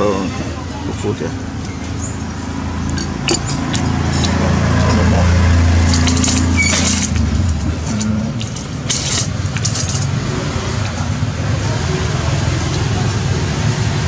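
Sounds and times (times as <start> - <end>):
vehicle engine passing: 1.3 - 14.0
metal spoons clattering: 2.9 - 5.2, 5.8 - 10.2.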